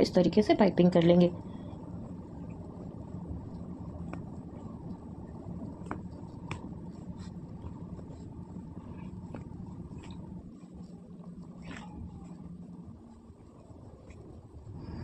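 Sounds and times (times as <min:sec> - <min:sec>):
steady low hum: 0:00.0 - 0:15.0
cord rubbing and rustling: 0:03.5 - 0:14.6.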